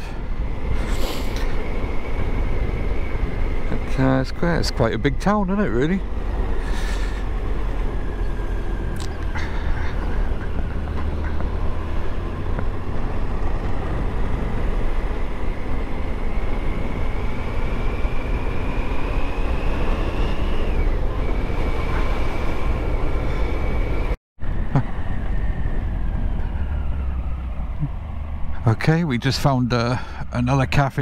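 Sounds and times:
motorcycle engine: 0.0 - 24.1
engine whine rising in pitch: 0.0 - 29.7
wind and road noise: 0.0 - 31.0.

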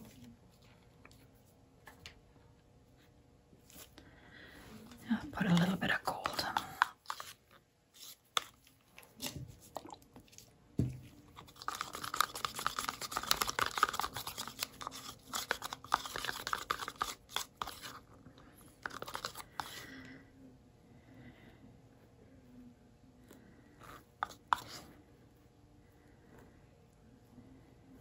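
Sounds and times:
stir stick scraping in paint cup: 5.4 - 10.4, 11.3 - 18.1, 18.8 - 19.8, 23.8 - 25.0.

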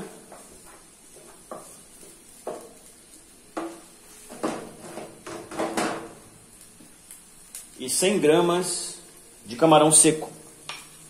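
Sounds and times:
wooden spoon knocking a frying pan: 0.2 - 1.8, 2.4 - 2.8, 3.5 - 6.2.

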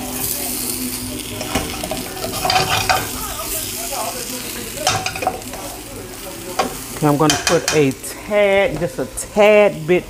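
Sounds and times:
potatoes sizzling in skillet: 0.0 - 10.0
spatula scraping pan: 1.2 - 3.8.

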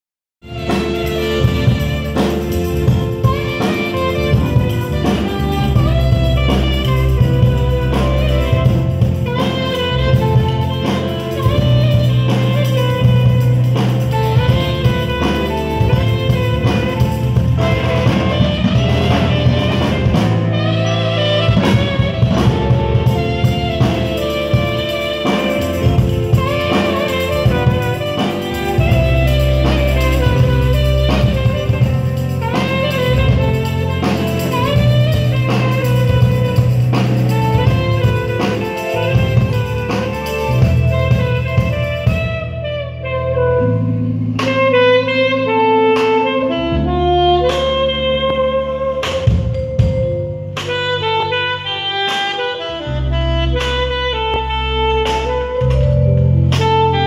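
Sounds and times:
alto saxophone melody: 0.4 - 57.0
drum kit: 0.4 - 57.0
electronic keyboard: 0.4 - 57.0
held bass notes: 0.4 - 57.0.

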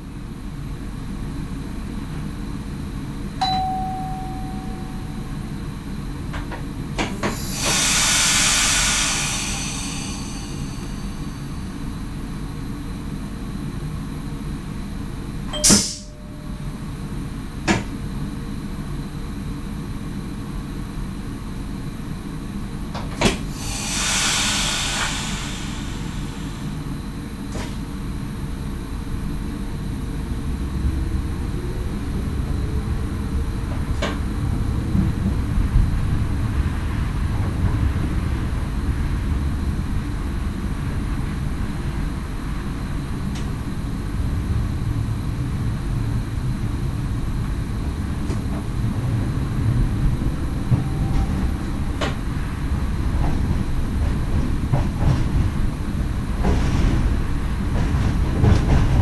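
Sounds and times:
train cab equipment humming: 0.0 - 59.0
short beep: 3.4 - 5.4, 15.6 - 16.6
compressed air hissing: 7.1 - 11.8, 23.5 - 27.0.

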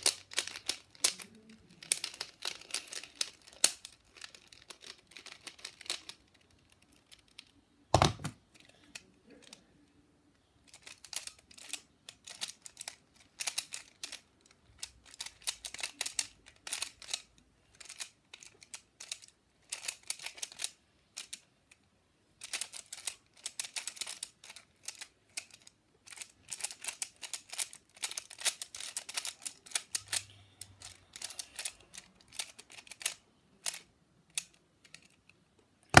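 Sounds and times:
plastic puzzle clicking: 0.0 - 9.6, 10.7 - 21.8, 22.4 - 36.0.

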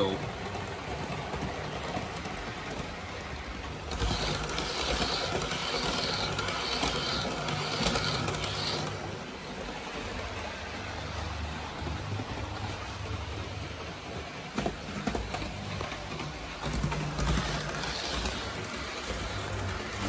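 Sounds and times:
wheels rattling on rail: 0.0 - 20.0
model train electric motor whir: 1.4 - 10.4, 16.6 - 20.0.

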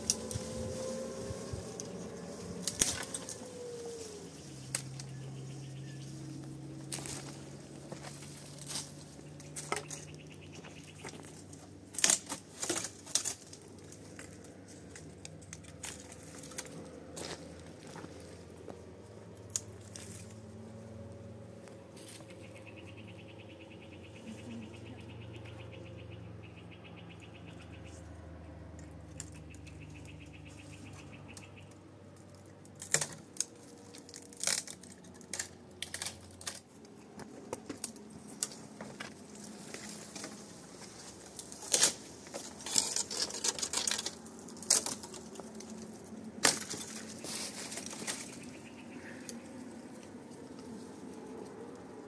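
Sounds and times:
low hum: 0.0 - 32.6
rustling: 32.8 - 49.4.

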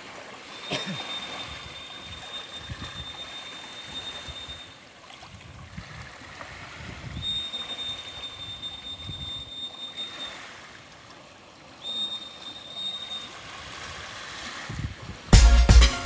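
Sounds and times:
water: 0.0 - 16.0
wind rumble on microphone: 1.4 - 3.2, 5.2 - 7.5, 8.4 - 9.5, 13.5 - 15.4.

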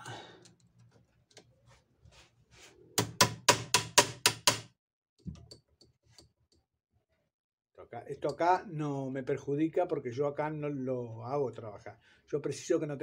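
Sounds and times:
hammer tapping metal: 3.0 - 4.7.

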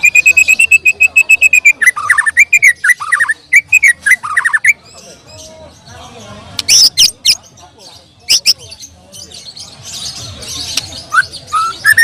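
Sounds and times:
bird singing whistled phrases: 11.1 - 12.0.

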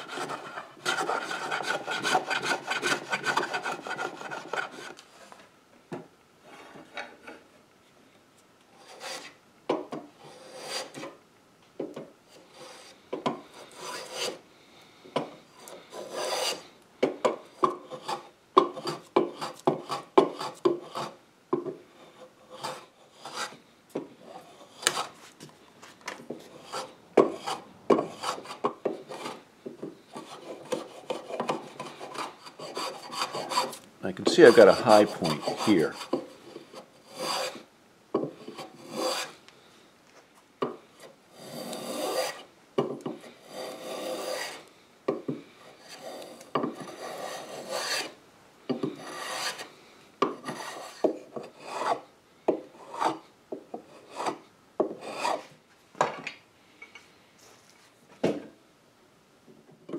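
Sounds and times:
hand plane shaving wood: 0.0 - 5.0, 12.5 - 14.4, 15.6 - 16.7, 30.1 - 37.6, 38.5 - 39.3, 41.4 - 42.5, 43.3 - 44.6, 45.7 - 48.2, 48.9 - 49.7, 50.4 - 52.0, 55.0 - 55.5
wood rasp scraping wood: 0.0 - 5.0, 8.8 - 9.4, 10.2 - 11.2, 12.4 - 14.4, 15.3 - 21.2, 21.9 - 25.2, 26.3 - 29.4, 30.0 - 39.4, 40.7 - 42.5, 43.1 - 55.5.

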